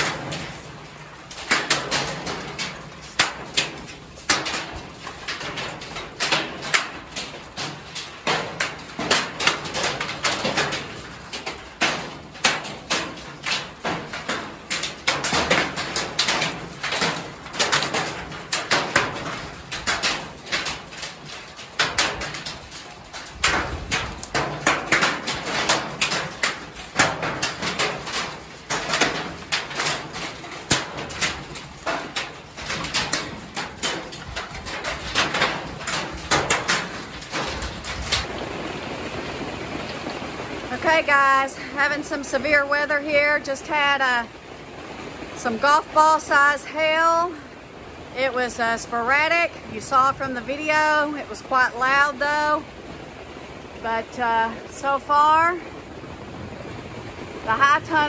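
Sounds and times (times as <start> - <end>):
hailstones striking hard surfaces: 0.0 - 44.0.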